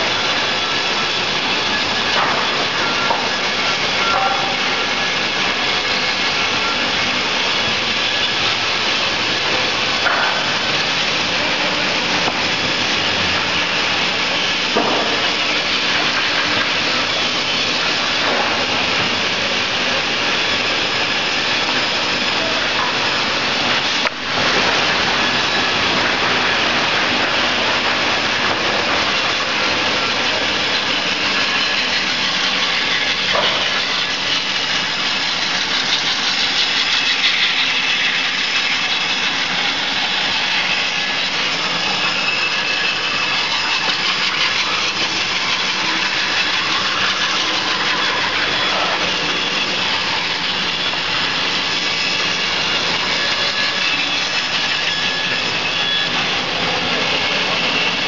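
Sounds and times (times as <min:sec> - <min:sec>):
slicing machine running: 0:00.0 - 0:58.0.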